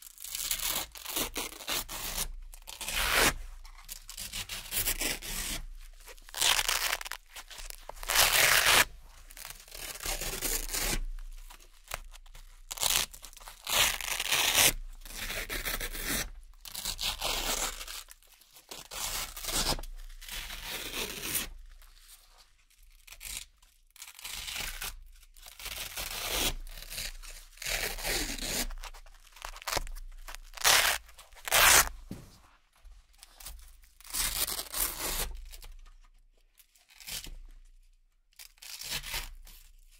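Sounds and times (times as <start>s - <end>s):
velcro ripping: 0.1s - 3.4s, 4.1s - 12.0s, 12.7s - 21.5s, 24.0s - 25.0s, 25.6s - 32.0s.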